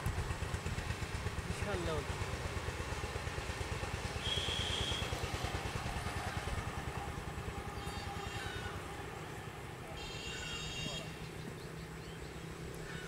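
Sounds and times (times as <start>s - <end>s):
small engine puttering: 0.0s - 13.0s
short high whistle: 4.2s - 5.1s.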